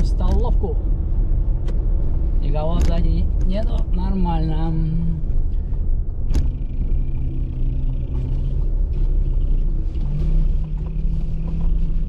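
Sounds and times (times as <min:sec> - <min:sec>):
car engine running: 0:00.0 - 0:12.0
road rumble: 0:00.0 - 0:12.0.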